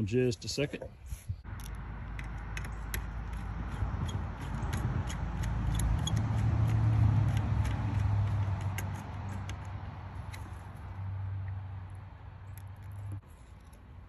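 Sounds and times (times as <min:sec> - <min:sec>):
screwdriver clicking and scraping: 0:01.4 - 0:10.9.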